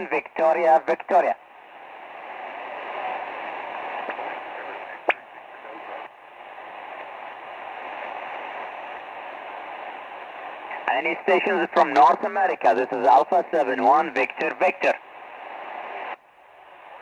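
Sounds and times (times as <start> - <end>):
radio band noise hiss: 0.0 - 17.0
static click: 5.0 - 5.3.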